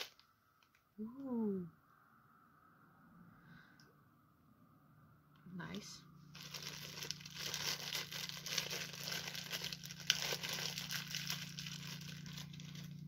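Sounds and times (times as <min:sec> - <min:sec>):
plastic wrapper crinkling and tearing: 0:00.0 - 0:00.8, 0:06.3 - 0:13.0.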